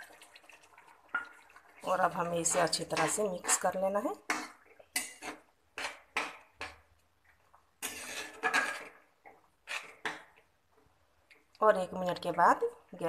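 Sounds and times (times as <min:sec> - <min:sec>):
spatula scraping metal pan: 0:01.8 - 0:06.8, 0:07.8 - 0:10.3.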